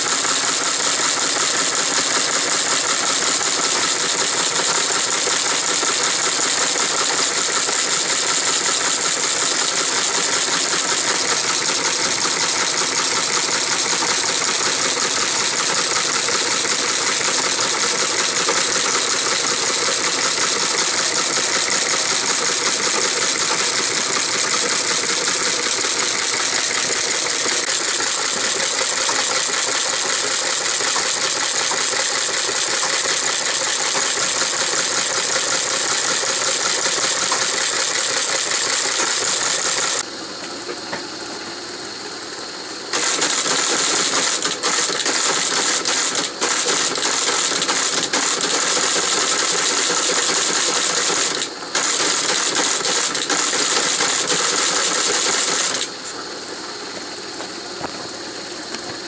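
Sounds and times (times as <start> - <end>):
teleprinter clattering: 0.0 - 40.0, 42.9 - 56.0.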